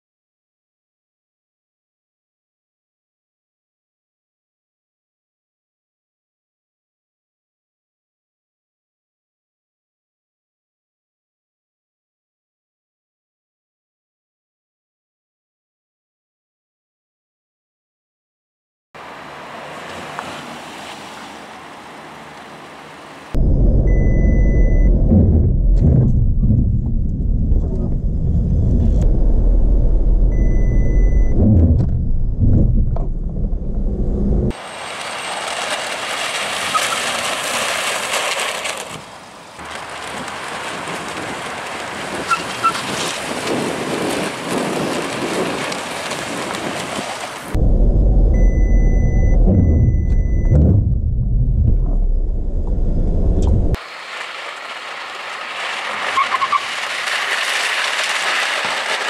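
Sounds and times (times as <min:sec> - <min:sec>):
wind and tyre noise hiss: 0:19.0 - 0:24.4, 0:34.5 - 0:47.6, 0:52.9 - 0:59.0
road and engine rumble: 0:19.0 - 0:59.0
steady high beep: 0:23.8 - 0:24.9, 0:30.3 - 0:31.4, 0:48.4 - 0:50.6.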